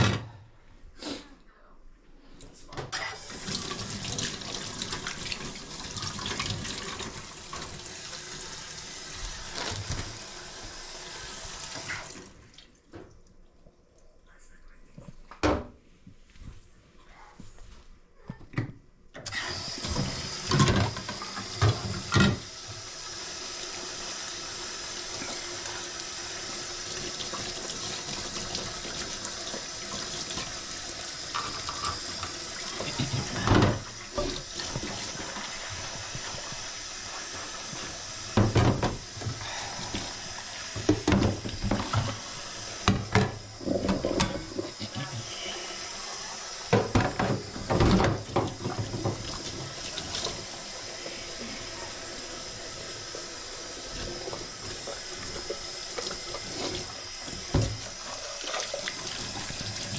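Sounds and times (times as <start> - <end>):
knocks and clatters in sink: 0.0 - 0.4, 19.9 - 22.5, 31.3 - 35.5, 38.3 - 39.4, 40.8 - 42.2, 42.8 - 44.9, 46.7 - 50.4
tap water running into sink: 3.0 - 13.2, 19.3 - 45.0, 46.2 - 59.9.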